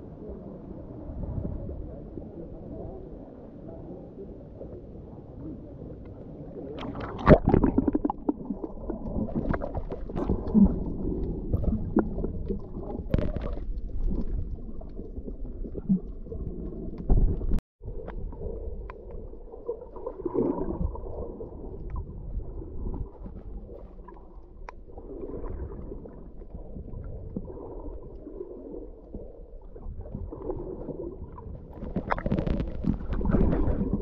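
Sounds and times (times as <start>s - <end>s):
muffled underwater water sloshing: 0.0s - 34.0s
bubble pops: 6.8s - 10.6s, 31.9s - 34.0s.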